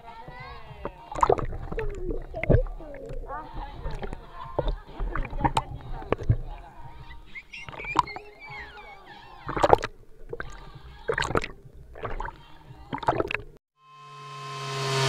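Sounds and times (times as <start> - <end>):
water splashing over microphone: 0.3 - 8.3, 9.4 - 13.6
rising whoosh sound effect: 13.9 - 15.0.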